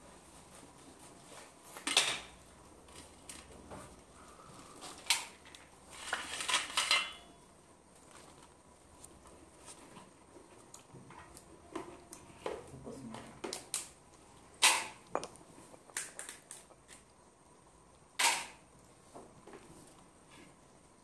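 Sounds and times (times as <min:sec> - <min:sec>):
crab shells cracking: 0:13.5 - 0:17.2.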